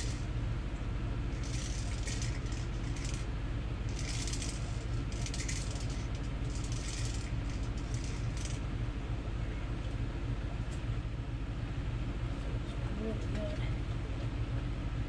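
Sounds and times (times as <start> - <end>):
fishing line rustling and scraping: 0.0 - 0.3, 1.3 - 3.3, 3.9 - 8.6
steady low hum: 0.0 - 15.0.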